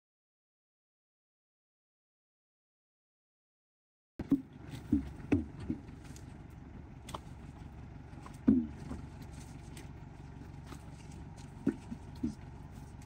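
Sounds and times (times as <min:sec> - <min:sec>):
low engine hum: 0:04.2 - 0:13.0
sharp knocks and thuds: 0:04.2 - 0:13.0.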